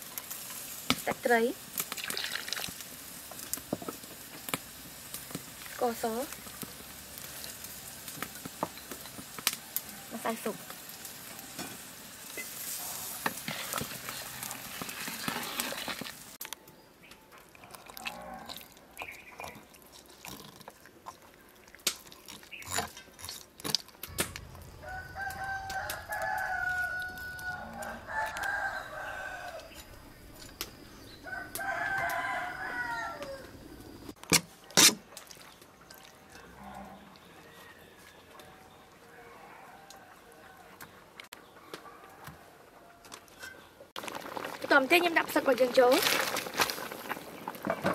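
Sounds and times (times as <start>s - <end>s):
pot of broth hissing: 0.0s - 16.4s
rooster crowing: 24.2s - 30.2s, 31.0s - 33.9s.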